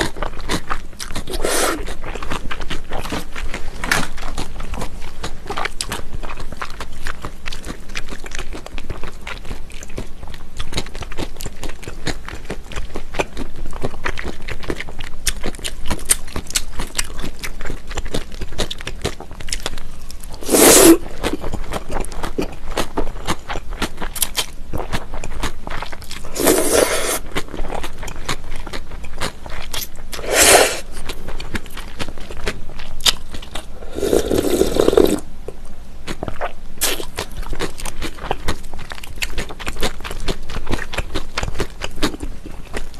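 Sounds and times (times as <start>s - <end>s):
wet chewing and crunching: 0.0s - 42.9s
slurping noodles: 1.2s - 2.0s, 20.3s - 21.1s, 26.2s - 27.4s, 30.1s - 31.0s, 33.6s - 35.2s.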